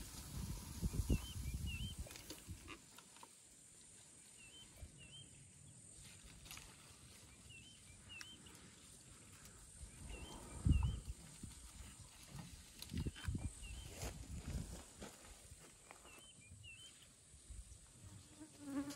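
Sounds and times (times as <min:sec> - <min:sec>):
leaves rustling: 0:06.0 - 0:09.6.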